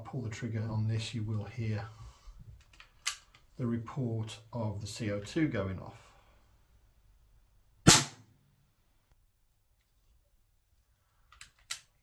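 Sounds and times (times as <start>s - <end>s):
gas pistol pop: 7.9s - 8.2s.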